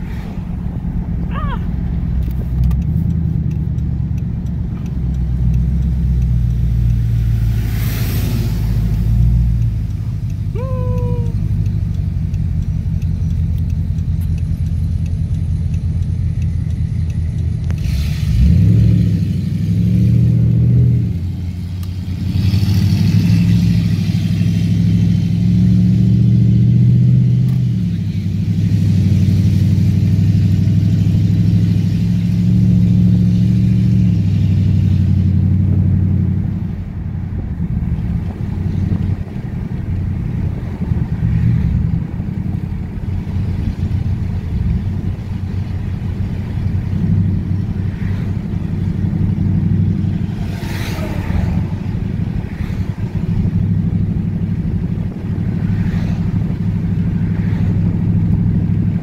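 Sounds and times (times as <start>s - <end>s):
car engine and exhaust rumble: 0.0s - 59.0s.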